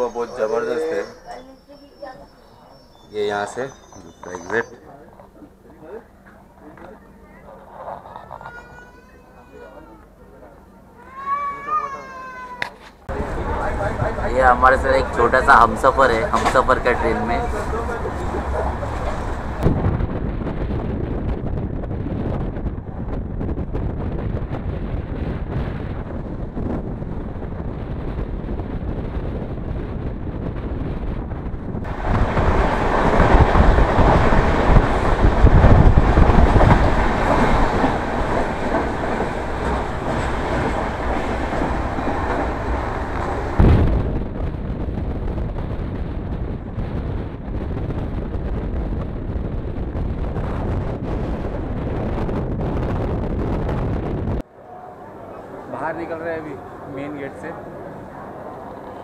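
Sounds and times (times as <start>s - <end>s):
train wheels rumbling on track: 0.0s - 54.5s.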